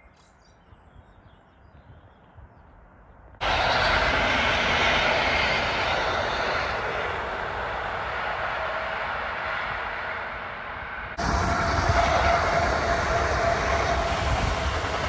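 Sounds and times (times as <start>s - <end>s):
train passing close by: 3.4s - 15.0s.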